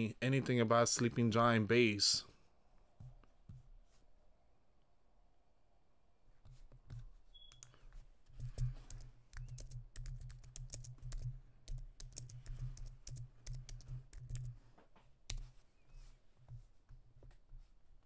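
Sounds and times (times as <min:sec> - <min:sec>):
computer keyboard typing: 0:07.5 - 0:14.6.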